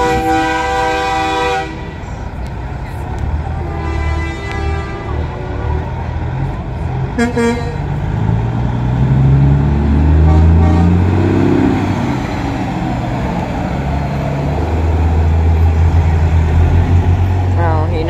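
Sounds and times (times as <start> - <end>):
truck horn blast: 0.0 - 2.0, 3.5 - 5.9, 7.1 - 8.0, 10.1 - 11.8
diesel trucks rumbling past: 0.0 - 18.0.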